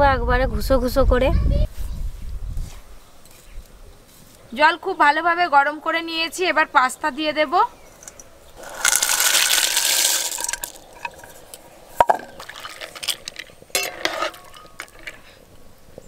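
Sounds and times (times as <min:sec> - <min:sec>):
pasta splashing into water: 0:08.6 - 0:11.4, 0:12.0 - 0:14.6
metal spatula scraping a pot: 0:12.8 - 0:15.4.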